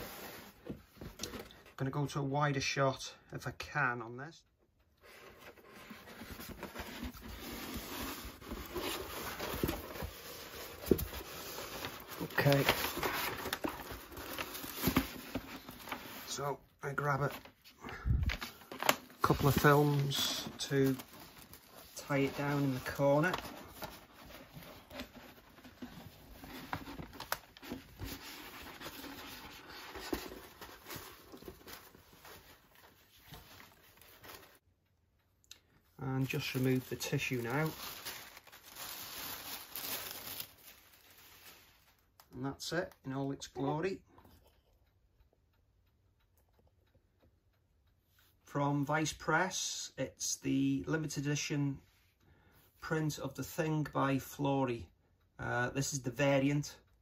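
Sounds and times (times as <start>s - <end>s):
paper rustling and rubbing: 5.1s - 16.4s, 18.3s - 34.6s.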